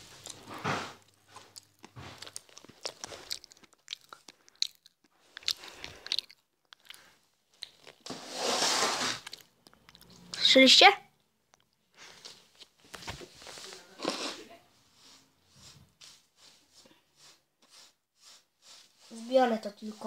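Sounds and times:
popping candy crackling: 0:01.1 - 0:08.1.

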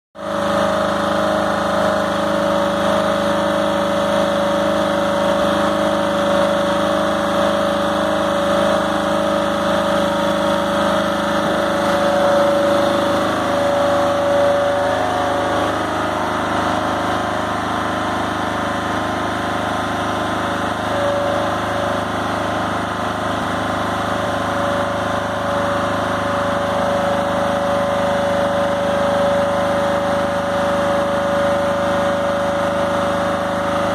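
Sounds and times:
small engine running under load: 0:00.2 - 0:33.9.

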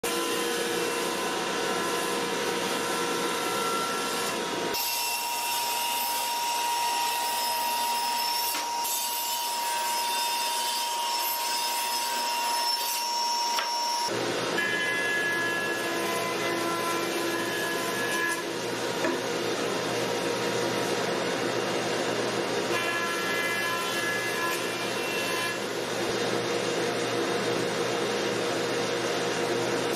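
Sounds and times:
table saw ripping wood: 0:00.0 - 0:19.2
jointer cutting wood: 0:00.0 - 0:19.7, 0:22.6 - 0:26.4.

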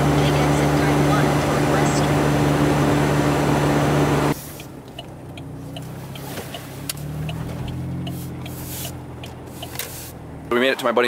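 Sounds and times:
car engine and road noise: 0:00.0 - 0:11.0
low engine hum: 0:00.0 - 0:11.0
faint light ticks: 0:04.6 - 0:09.9.

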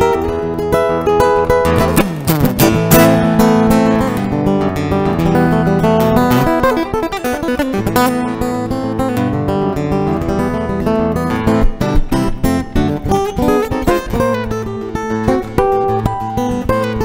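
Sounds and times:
guitar music: 0:00.0 - 0:17.0.

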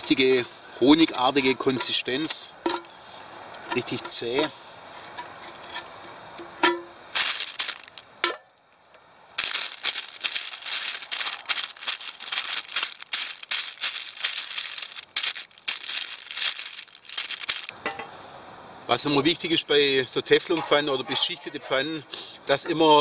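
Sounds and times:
paper rustling and crinkling: 0:07.1 - 0:08.1, 0:09.4 - 0:17.7
almonds clattering: 0:07.1 - 0:08.2, 0:09.3 - 0:18.1.

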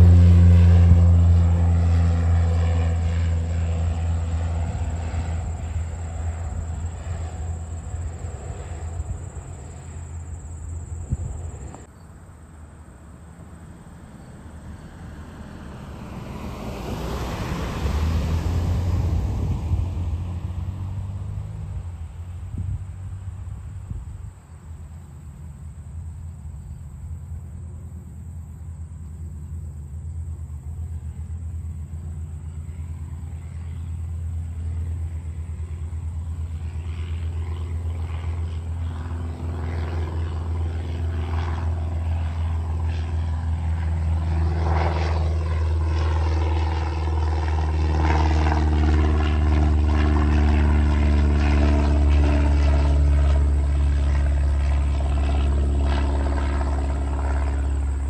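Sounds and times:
propeller plane engine drone: 0:00.0 - 0:58.0.

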